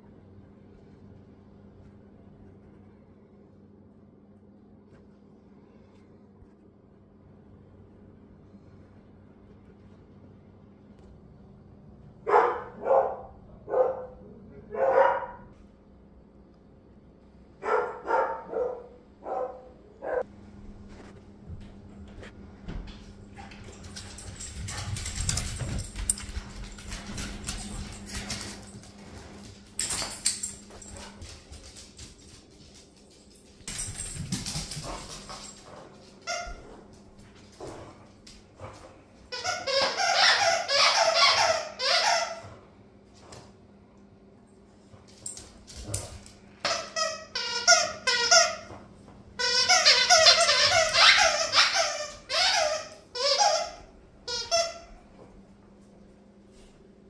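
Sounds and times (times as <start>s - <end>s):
dog barking: 12.2s - 15.5s, 17.6s - 20.3s
dog squealing: 49.9s - 53.8s.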